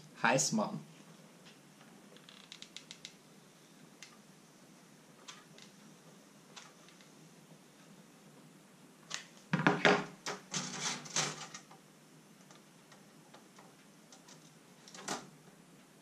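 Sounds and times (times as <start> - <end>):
objects knocking on wooden table: 9.5 - 10.2.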